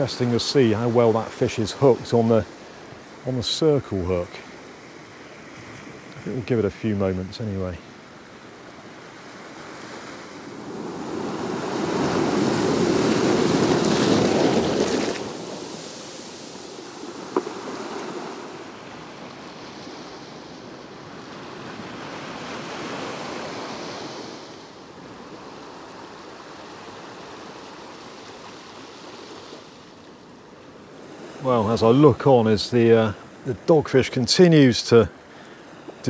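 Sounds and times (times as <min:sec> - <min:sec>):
waves washing over pebbles: 0:09.6 - 0:29.8.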